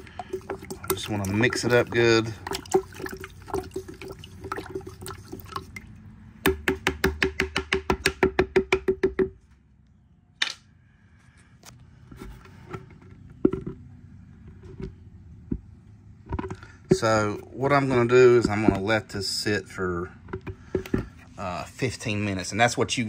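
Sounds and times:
stick knocking on a plastic jar: 0:00.2 - 0:05.6, 0:06.4 - 0:09.4.

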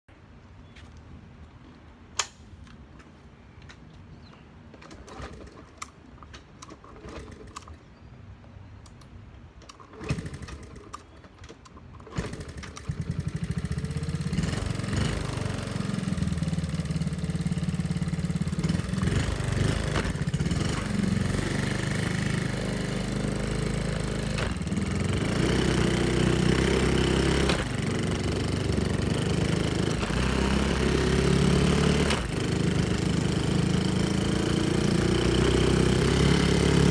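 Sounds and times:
small motorbike engine running: 0:12.0 - 0:36.9.

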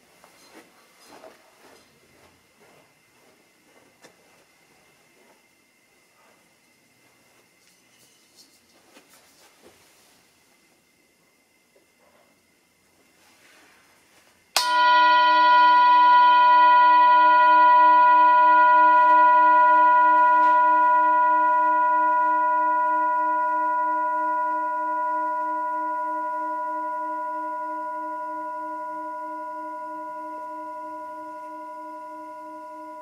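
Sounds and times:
brass bowl ringing: 0:14.6 - 0:33.0.

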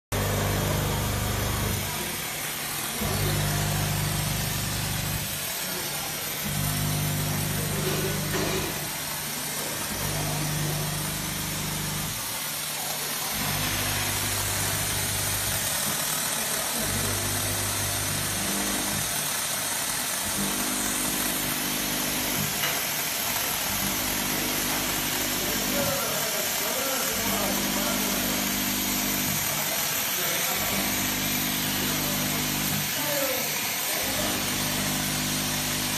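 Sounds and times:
steam hissing from wand: 0:29.2 - 0:35.8.

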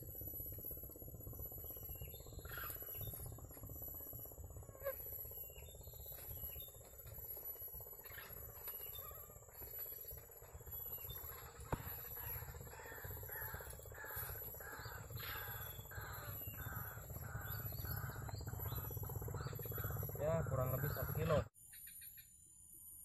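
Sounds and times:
low steady rumble: 0:00.0 - 0:21.5
bird harsh call: 0:11.1 - 0:21.5.

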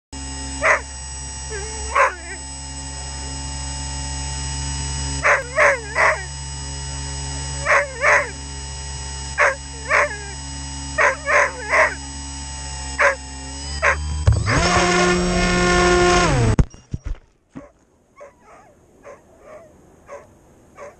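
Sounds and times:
model plane electric motor: 0:00.2 - 0:16.7
steady background whine: 0:00.2 - 0:20.9
dog barking: 0:00.6 - 0:00.8, 0:01.5 - 0:02.4, 0:05.2 - 0:06.3, 0:07.6 - 0:08.4, 0:09.4 - 0:10.4, 0:11.0 - 0:12.0, 0:13.0 - 0:13.2, 0:17.6 - 0:20.9.

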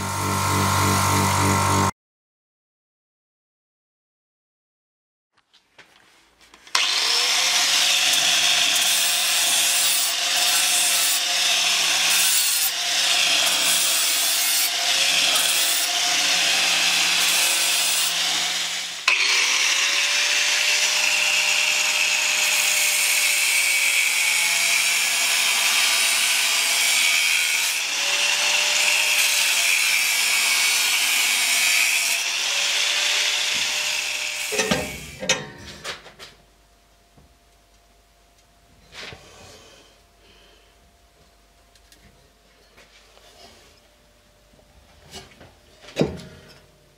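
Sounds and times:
angle grinder grinding steel: 0:00.0 - 0:01.9, 0:06.7 - 0:35.4.

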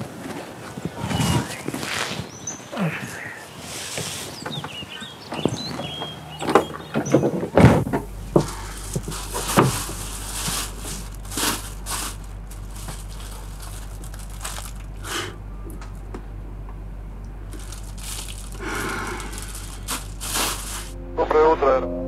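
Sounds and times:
steady low hum: 0:00.0 - 0:22.0
plastic bags rustling: 0:07.1 - 0:15.3, 0:17.4 - 0:21.0.

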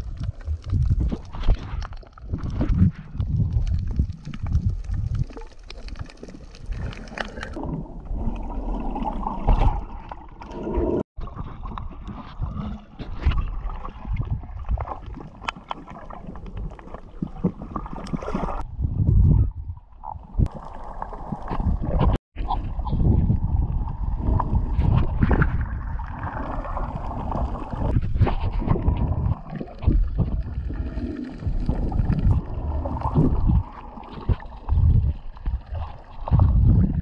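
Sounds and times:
wind on microphone: 0:00.0 - 0:05.3, 0:18.6 - 0:20.5, 0:21.5 - 0:37.0
water sloshing and gurgling: 0:00.0 - 0:37.0.

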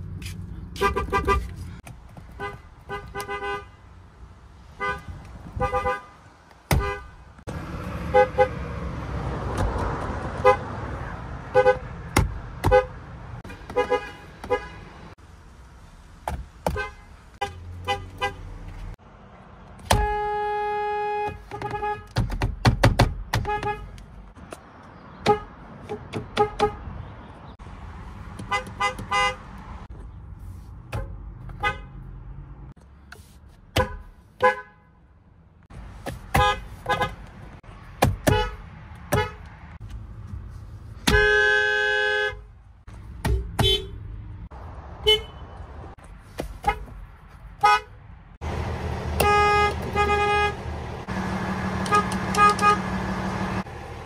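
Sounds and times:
car horn toots: 0:02.4 - 0:03.8, 0:04.8 - 0:06.1, 0:19.9 - 0:22.2, 0:23.4 - 0:23.9, 0:28.5 - 0:29.4, 0:41.0 - 0:42.4, 0:43.6 - 0:44.0, 0:45.0 - 0:45.5, 0:49.1 - 0:50.6, 0:51.8 - 0:53.0.

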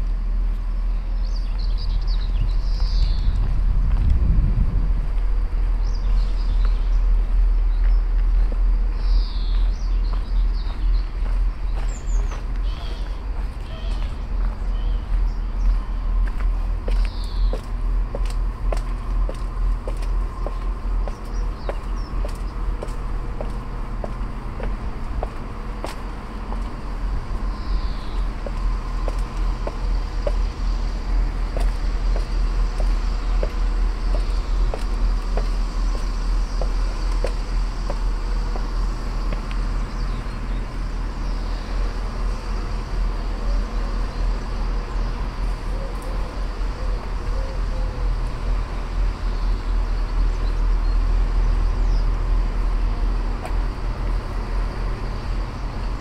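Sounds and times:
road traffic rumble: 0:00.0 - 0:56.0
footsteps on pavement: 0:00.1 - 0:56.0
faint bird chirps: 0:08.9 - 0:16.0.

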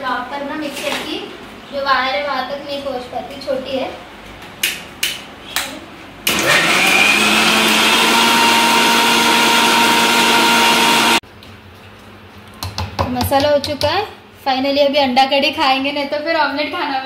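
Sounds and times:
mixer grinder motor grinding: 0:06.3 - 0:11.2.

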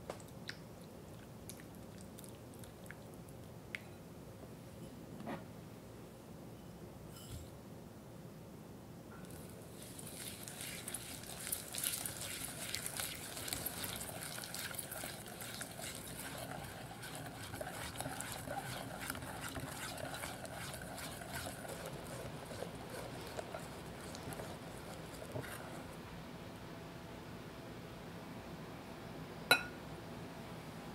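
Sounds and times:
whisk swishing in wet mixture: 0:09.4 - 0:26.1.

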